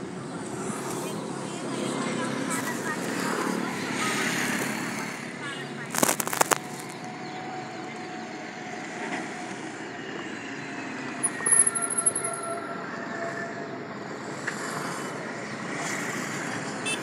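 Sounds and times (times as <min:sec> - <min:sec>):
road traffic passing: 0:00.0 - 0:17.0
crackly noise: 0:04.6 - 0:07.2.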